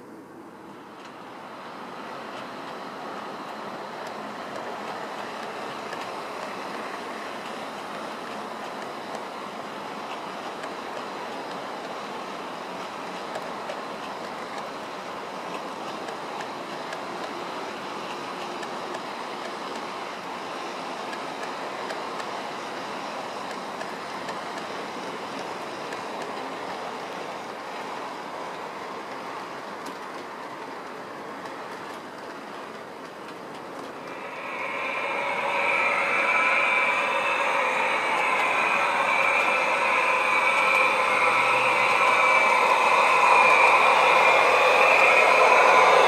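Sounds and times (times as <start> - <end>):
model train running on rails: 0.0 - 46.0
sound with steady tones: 33.8 - 46.0.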